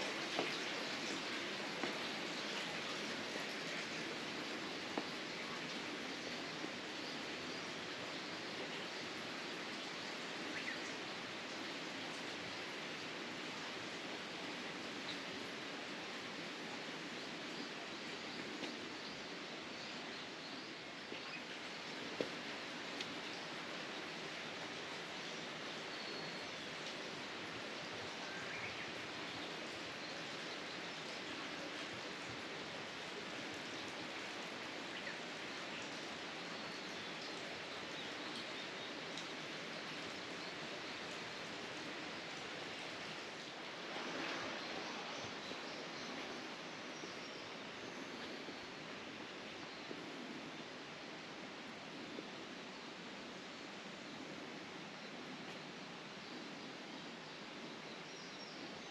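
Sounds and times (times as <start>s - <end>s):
running water rushing: 0.0s - 58.9s.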